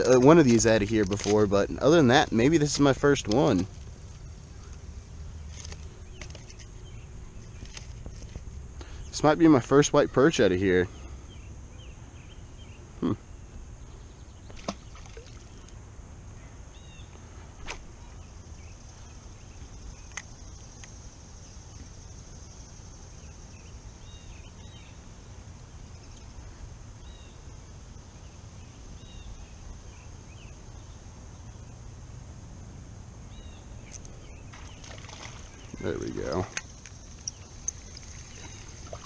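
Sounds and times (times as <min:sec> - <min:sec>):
faint bird chirps: 0:33.3 - 0:39.0.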